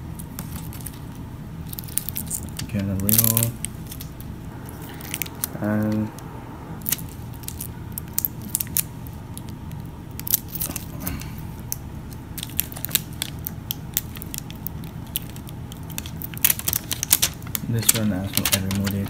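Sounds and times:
plastic protection clicking and crinkling: 12.4s - 19.0s.

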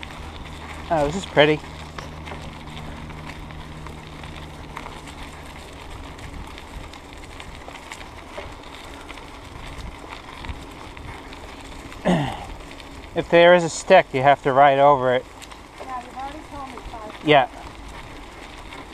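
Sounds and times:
faint low hum: 0.0s - 13.1s
bike tyres rolling over leaves: 0.0s - 18.9s.

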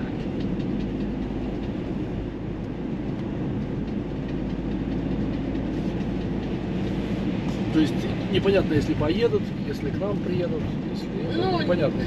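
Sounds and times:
car engine hum: 0.0s - 12.0s
road and tyre noise: 0.0s - 12.0s.

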